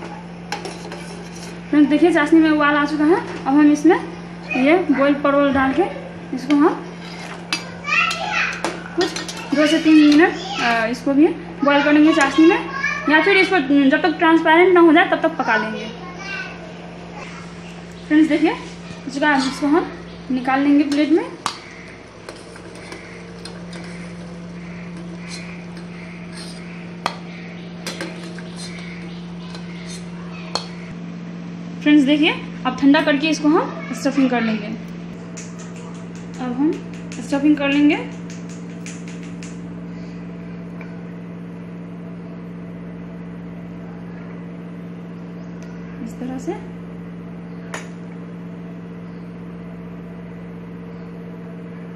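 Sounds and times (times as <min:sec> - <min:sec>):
steady low hum: 0:00.0 - 0:51.9
metal spoon clinking on pan: 0:09.0 - 0:09.6, 0:20.9 - 0:28.9.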